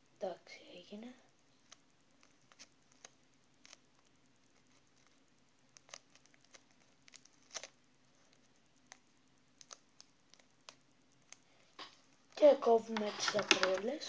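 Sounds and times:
faint steady hum: 0.0 - 14.0
paper and tape crinkling: 5.8 - 9.0, 9.6 - 14.0.

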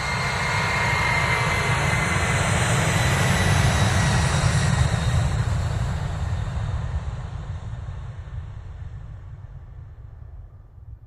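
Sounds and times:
jet engine roaring at takeoff: 0.0 - 6.7.

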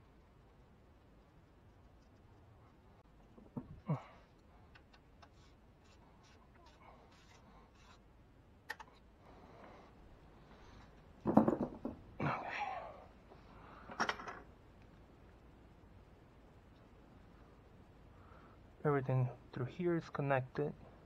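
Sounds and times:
tools knocking and rattling: 11.2 - 12.0.

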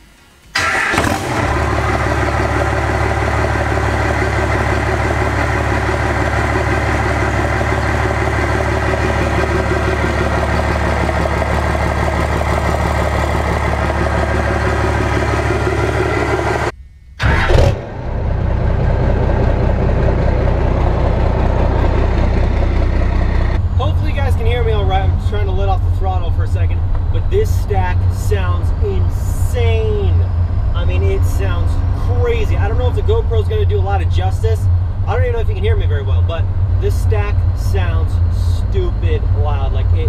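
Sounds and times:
engine revving burst: 0.6 - 23.6
diesel engine idling: 0.6 - 40.0.

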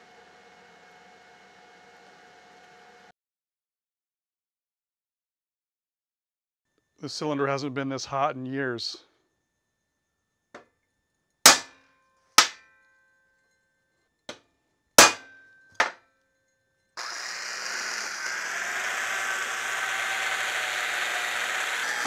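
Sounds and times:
hammer striking steel: 11.5 - 11.8, 12.4 - 12.8, 15.0 - 16.0
electric drill drilling into steel: 17.0 - 22.0.

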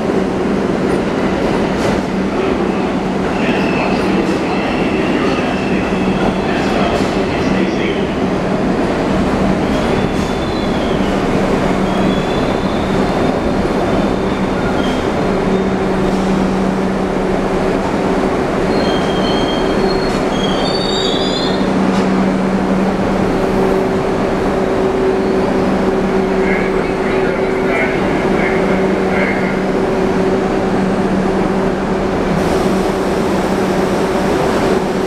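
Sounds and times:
subway train rumbling: 0.0 - 35.0
wheel and brake squeals: 18.7 - 21.7.

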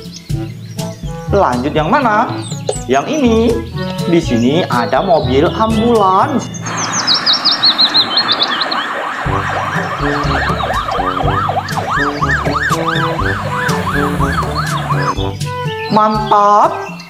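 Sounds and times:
traffic: 6.4 - 15.6
ambulance siren: 6.6 - 15.4.

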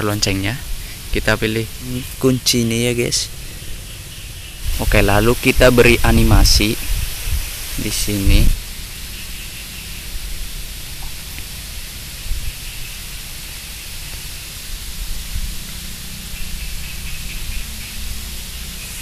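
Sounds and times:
microphone hiss: 0.0 - 19.0.

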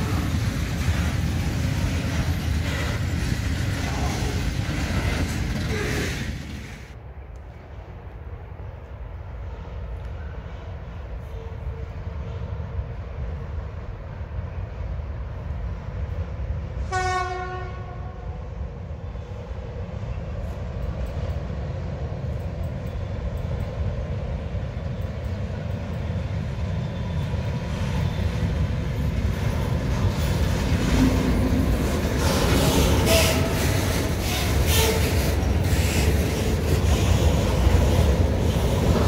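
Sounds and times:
wheels clattering on rails: 0.0 - 7.0
low train rumble: 0.0 - 39.0
train horn blast: 16.8 - 18.4, 32.9 - 35.2.

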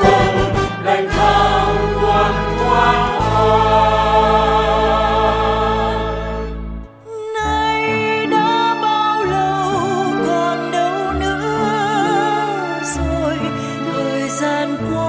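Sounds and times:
bass drum: 0.0 - 1.4
mixed choir singing: 0.0 - 6.7
string orchestra: 0.0 - 6.9, 7.6 - 15.0.

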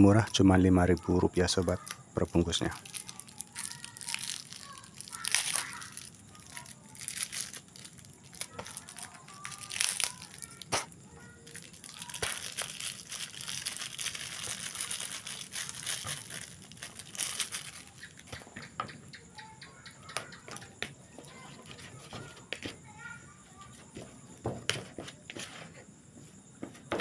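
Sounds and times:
plastic packet crinkling: 0.0 - 18.3.

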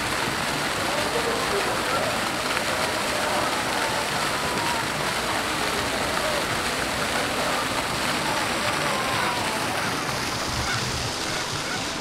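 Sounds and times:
rushing water: 0.0 - 12.0
faint distant voices: 0.7 - 12.0.

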